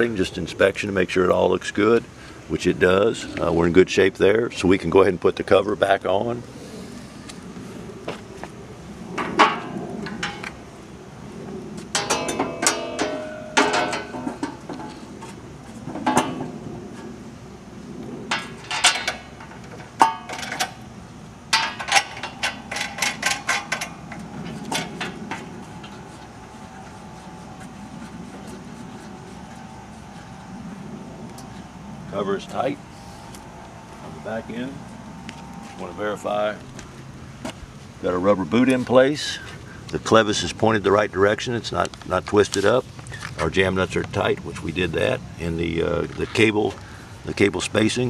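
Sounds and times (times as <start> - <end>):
sheet metal clanking and rattling: 11.9 - 15.1, 15.8 - 16.9, 18.3 - 20.8, 21.5 - 26.7.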